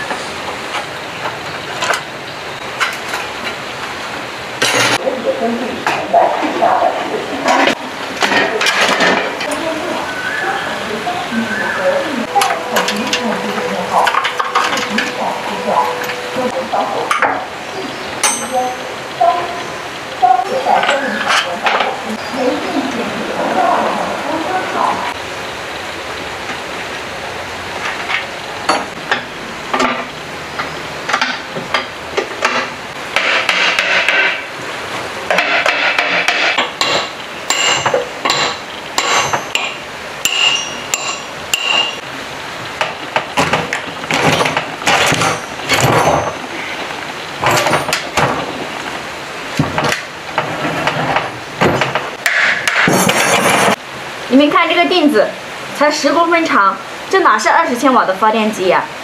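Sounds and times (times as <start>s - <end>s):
hammer clanking on metal: 18.2s - 18.8s, 28.7s - 34.5s, 35.3s - 42.0s, 42.8s - 46.4s
metal parts scraping: 44.1s - 48.2s, 52.4s - 53.8s.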